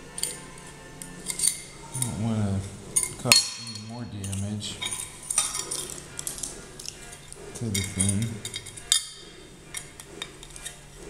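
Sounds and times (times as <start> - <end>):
metal parts clicking and clinking: 0.1 - 11.0
low hum of a voice: 1.9 - 5.1, 7.5 - 8.7.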